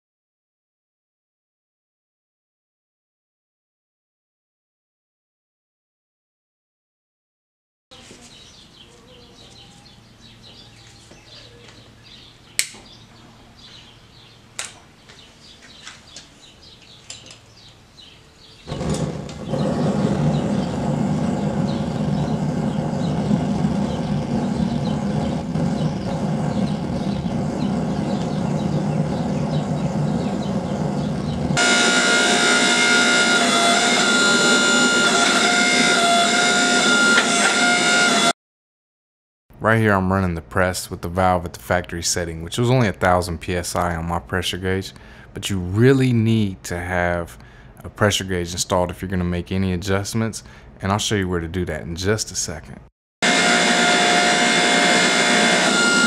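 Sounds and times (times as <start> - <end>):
sharp clicks: 12.6 - 12.9
forge flame rushing: 18.7 - 38.3
held tones: 18.7 - 38.3, 53.2 - 56.0.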